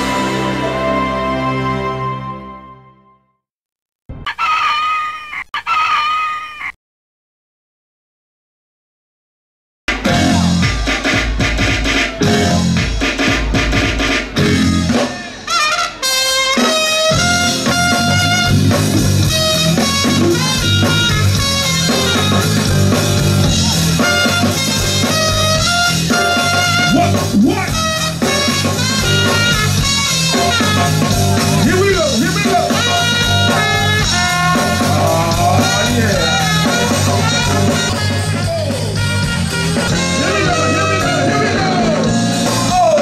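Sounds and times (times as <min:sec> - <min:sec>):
live band playing: 0:00.0 - 0:02.8, 0:09.9 - 0:43.0
trumpet playing held notes: 0:00.0 - 0:03.0, 0:14.0 - 0:42.3.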